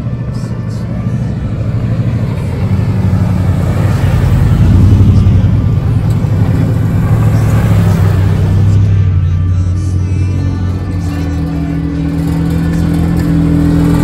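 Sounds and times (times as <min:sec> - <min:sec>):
pickup truck engine running: 0:00.0 - 0:14.0.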